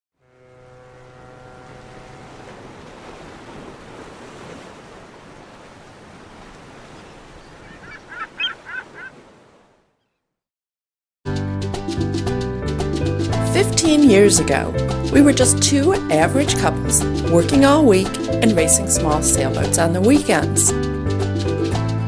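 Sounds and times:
low horn note: 0.1 - 3.3
sea waves washing: 0.6 - 9.9
seagull cries: 7.4 - 9.3.

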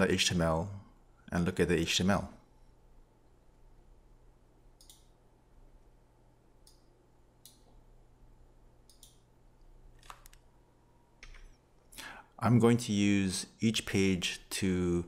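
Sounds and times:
computer mouse clicks: 4.8 - 5.2, 6.6 - 7.7, 8.8 - 9.3.

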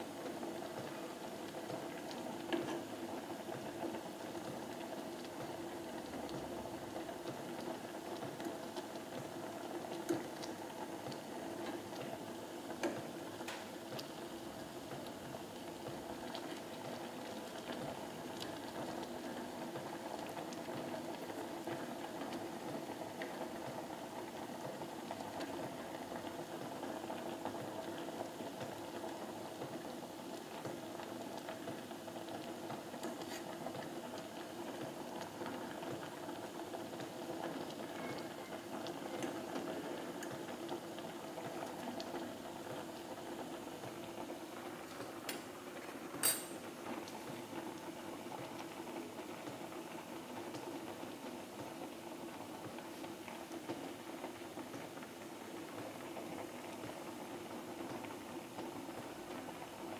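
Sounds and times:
broth boiling in pot: 0.0 - 59.9.

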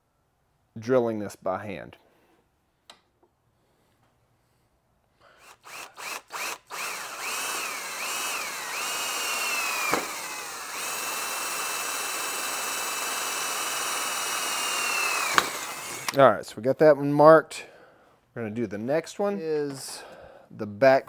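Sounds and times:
cordless drill whining: 5.3 - 16.2.

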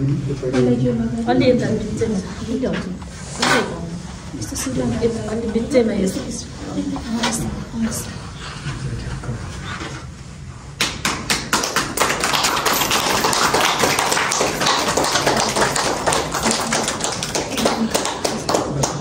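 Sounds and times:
group clapping: 10.8 - 19.0.

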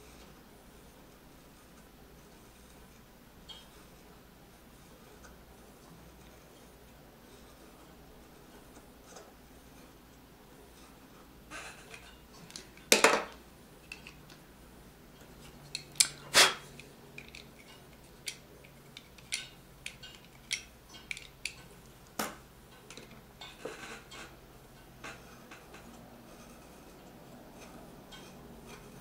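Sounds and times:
plastic fan clicking and tapping: 11.9 - 14.4, 15.2 - 26.1.

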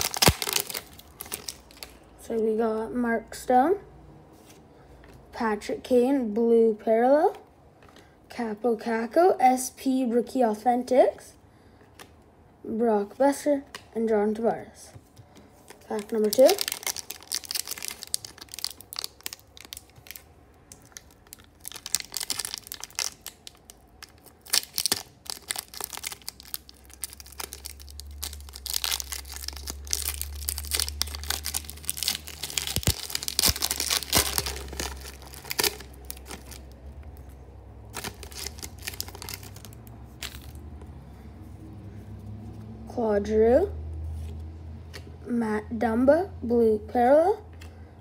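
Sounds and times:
foil wrapper tearing and crinkling: 0.0 - 2.0, 15.9 - 36.8, 37.9 - 40.6.

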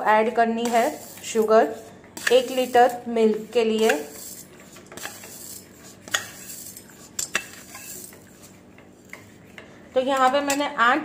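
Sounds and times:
spoon clinking against pot: 5.0 - 8.3.

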